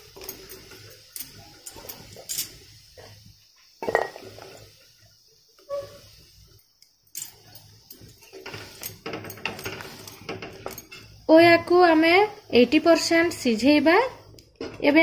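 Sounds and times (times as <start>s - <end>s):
water boiling: 0.0s - 15.0s
spatula scraping pan: 7.3s - 13.2s.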